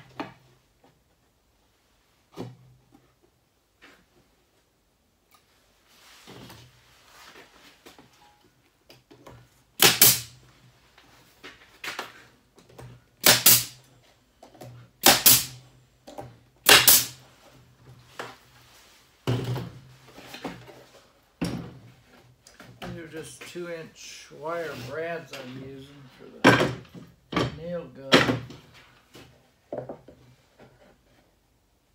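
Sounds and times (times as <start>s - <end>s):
pneumatic nailer shots: 9.8s - 10.4s, 13.2s - 13.8s, 15.0s - 15.6s, 16.6s - 17.2s.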